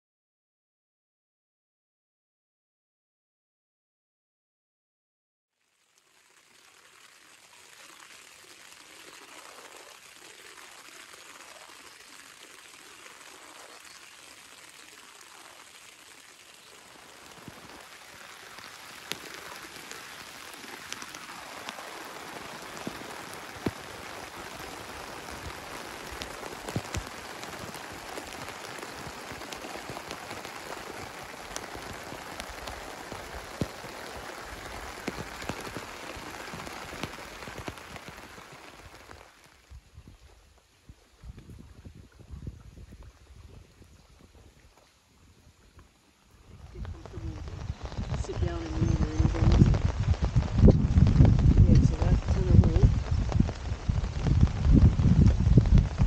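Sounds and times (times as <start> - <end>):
rain pattering on tent fabric: 5.5 - 56.0
rain drops hitting: 5.6 - 56.0.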